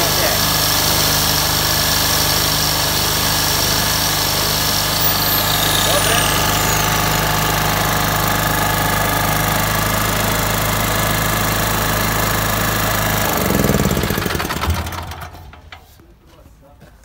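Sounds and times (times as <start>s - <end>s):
generator engine running: 5.0s - 15.6s
generator engine running down: 5.0s - 15.6s.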